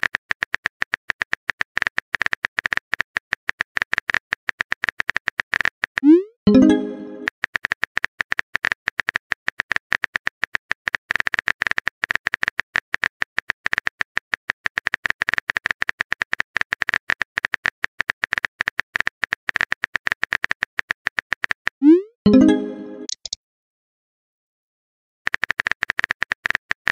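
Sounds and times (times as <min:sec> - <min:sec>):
keyboard typing clicks: 0:21.3 - 0:23.4.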